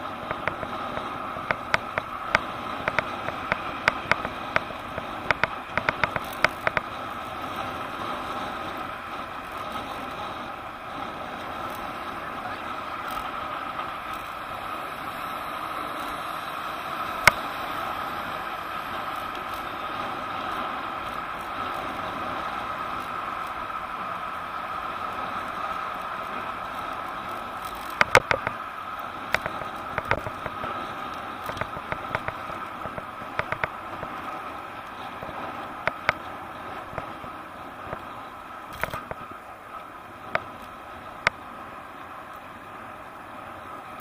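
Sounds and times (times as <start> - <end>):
passing traffic: 0.0 - 44.0
sharp clicks and knocks: 0.2 - 7.0, 27.6 - 28.6, 29.3 - 30.7, 31.4 - 34.1.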